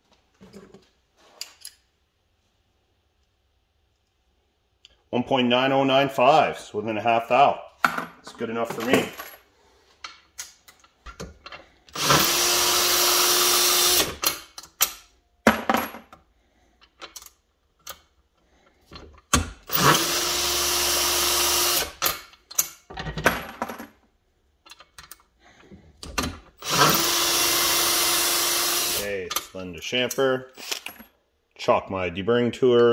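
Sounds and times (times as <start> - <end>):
cordless drill spinning cutter: 11.9 - 14.2, 19.7 - 22.0, 26.6 - 29.0.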